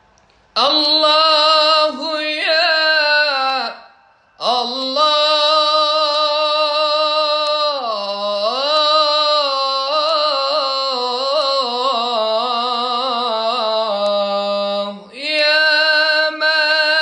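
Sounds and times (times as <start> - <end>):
man singing melismatic devotional chant: 0.6 - 17.0.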